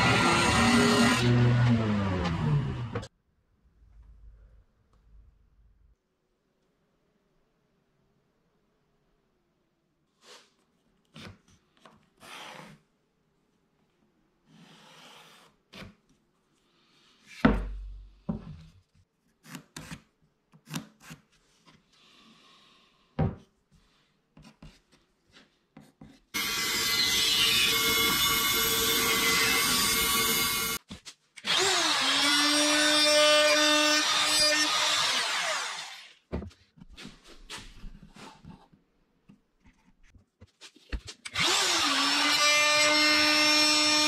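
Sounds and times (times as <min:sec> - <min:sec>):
bandsaw cutting board: 0:00.0 - 0:03.1, 0:26.4 - 0:30.8, 0:31.4 - 0:36.2.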